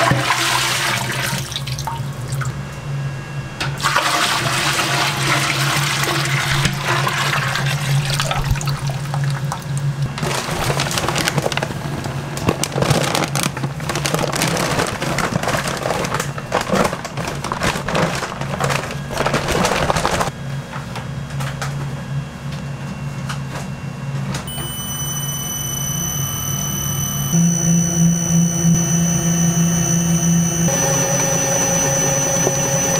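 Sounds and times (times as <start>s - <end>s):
high-pitched whine: 2.2s - 3.8s, 22.0s - 32.9s
stand mixer humming: 24.5s - 32.9s.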